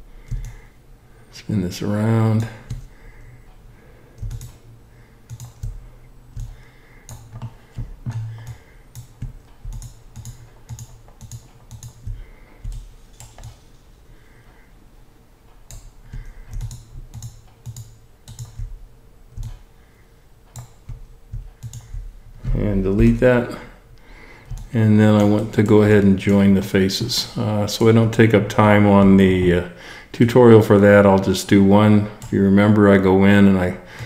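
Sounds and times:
faint steady hum: 0:00.0 - 0:34.0
mouse and keyboard clicks: 0:04.2 - 0:04.6, 0:05.3 - 0:13.6
soft low thuds: 0:20.8 - 0:23.4.

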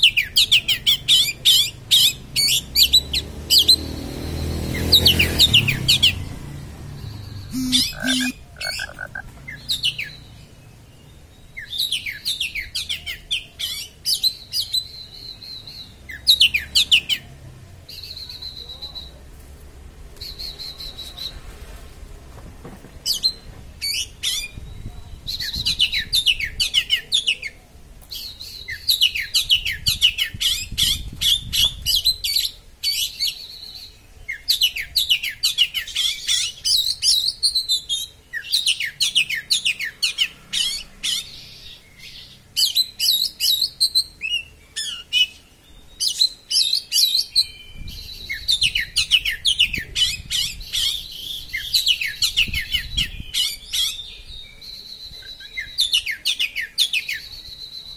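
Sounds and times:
bird singing whistled notes: 0:07.0 - 0:10.4, 0:40.8 - 0:57.9.

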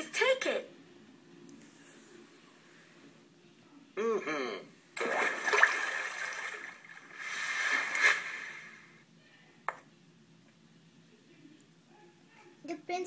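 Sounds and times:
cartoon water splash: 0:05.0 - 0:06.8.

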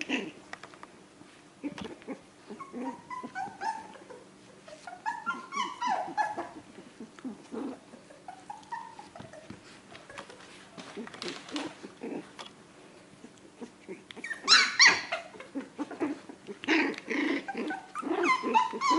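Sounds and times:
puppy yipping and whining: 0:01.6 - 0:10.9, 0:13.6 - 0:18.9.

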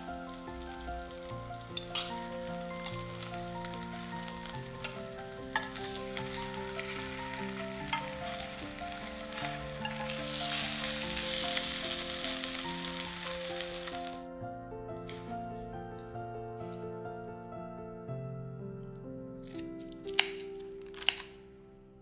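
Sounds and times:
pancakes sizzling in oil: 0:00.0 - 0:14.3
soft background music: 0:00.0 - 0:22.0.

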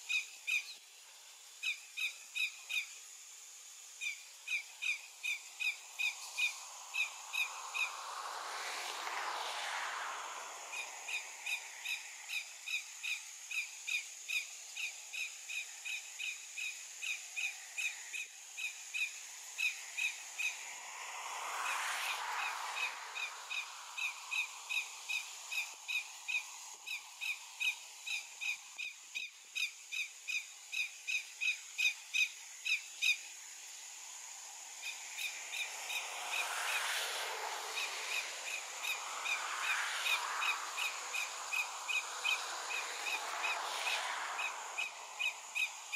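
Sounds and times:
broad rushing noise: 0:05.8 - 0:12.3, 0:19.2 - 0:27.6, 0:33.9 - 0:45.9.

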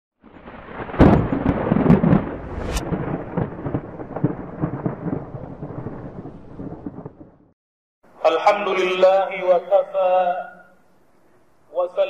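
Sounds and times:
thunder cracks: 0:00.3 - 0:07.5
rolling thunder rumble: 0:00.4 - 0:07.5.

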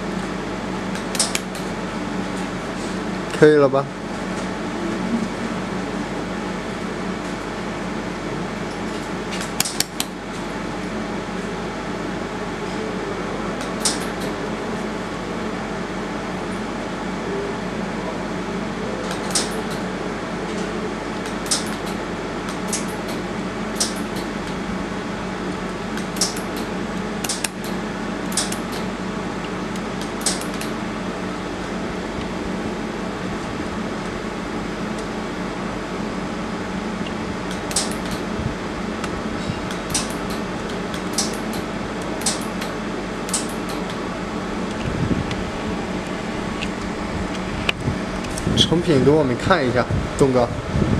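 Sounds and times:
machine fan humming: 0:00.0 - 0:50.9
sharp laser pulse ticks: 0:26.0 - 0:28.8.

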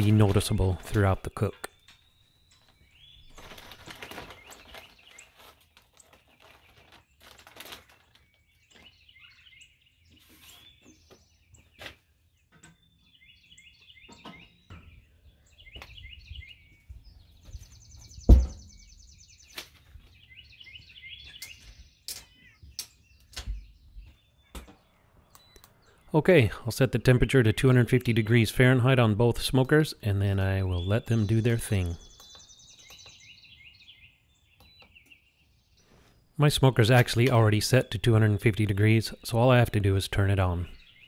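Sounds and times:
songbirds chirping: 0:00.0 - 0:41.0
loud thump: 0:18.3 - 0:18.6.

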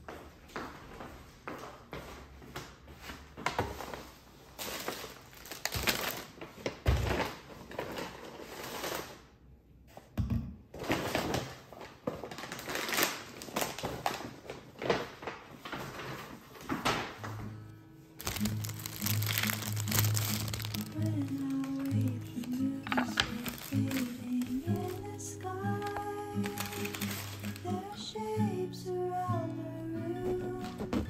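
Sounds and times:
paper bags rustling: 0:03.6 - 0:09.4, 0:10.8 - 0:17.6, 0:18.2 - 0:28.4.

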